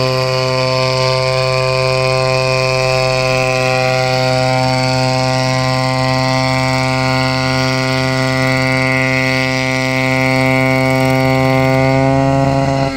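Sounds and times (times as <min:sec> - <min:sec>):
helicopter engine and rotor drone: 0:00.0 - 0:12.9.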